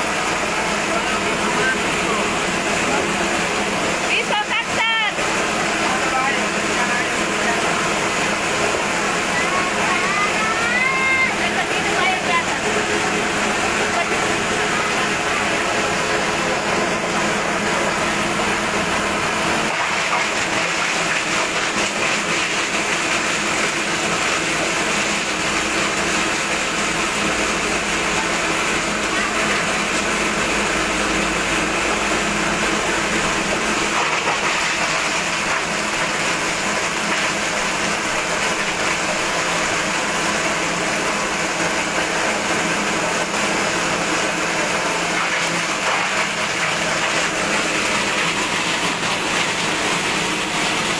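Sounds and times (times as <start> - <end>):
deeper machine hum: 0.0 - 50.9.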